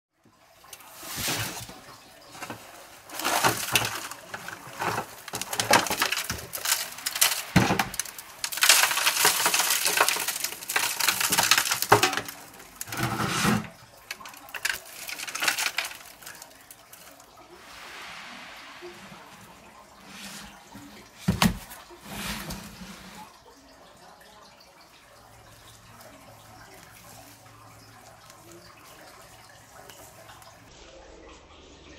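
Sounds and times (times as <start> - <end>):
plant pots rustling and crinkling: 0.6 - 23.3, 25.8 - 30.7
clinks and knocks: 3.2 - 13.4.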